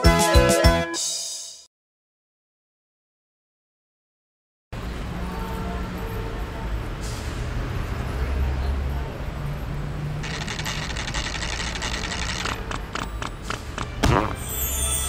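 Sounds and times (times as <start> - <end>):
low rumble of street traffic: 4.7 - 15.0
shimmering cartoon sound effect: 14.4 - 15.0.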